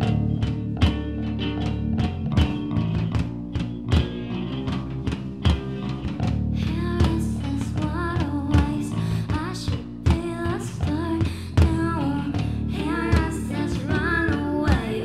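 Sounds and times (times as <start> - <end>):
distorted electric guitar: 0.0 - 6.6, 12.6 - 15.0
bass guitar: 0.0 - 15.0
drums: 0.0 - 15.0
person singing: 11.9 - 15.0.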